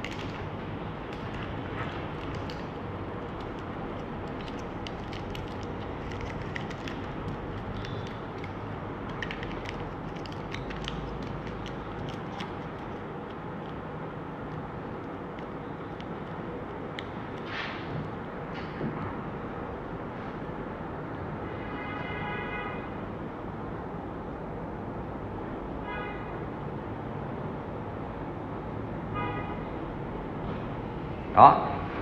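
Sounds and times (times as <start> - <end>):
aluminium foil crinkling: 0.0 - 0.5, 1.1 - 13.8.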